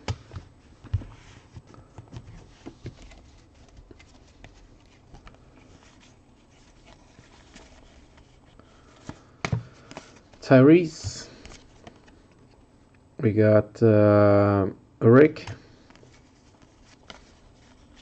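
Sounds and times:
cards clicking and rustling: 1.7s - 10.4s, 15.9s - 18.0s.

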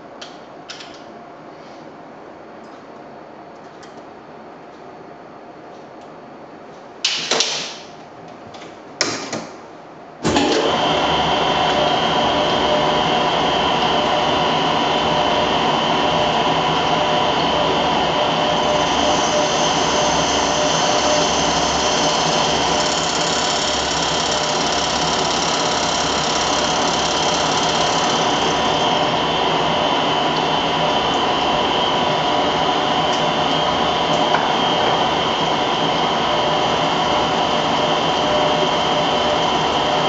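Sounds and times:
lathe running with cutting noise: 10.3s - 40.0s.

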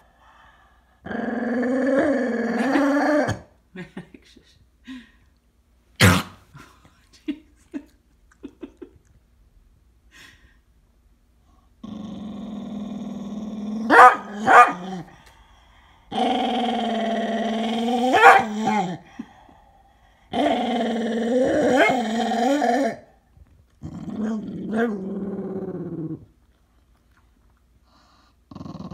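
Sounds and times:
puppy growling: 1.0s - 3.5s, 11.8s - 15.2s, 16.1s - 19.3s, 20.3s - 23.2s, 23.8s - 26.6s, 28.5s - 28.9s
puppy barking: 13.9s - 14.8s, 18.2s - 18.6s.

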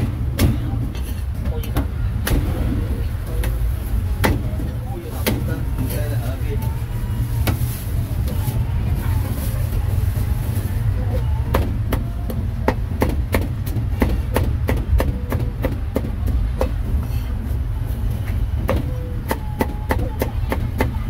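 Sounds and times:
low rumble: 0.0s - 13.9s.

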